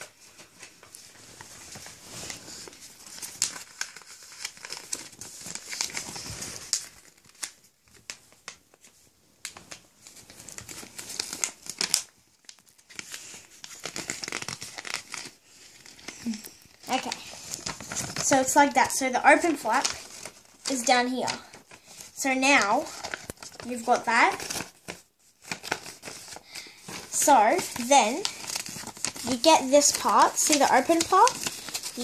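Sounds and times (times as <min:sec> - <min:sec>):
paper folding and crinkling: 0:00.0 - 0:32.0
paper snaps: 0:26.9 - 0:32.0.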